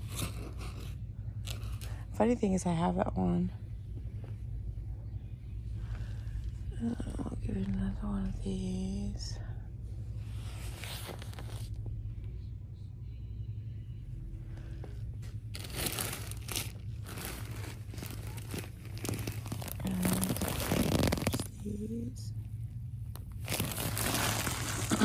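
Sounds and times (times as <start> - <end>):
steady low hum: 0.0 - 25.0
plastic package crinkling: 15.5 - 21.5, 23.2 - 25.0.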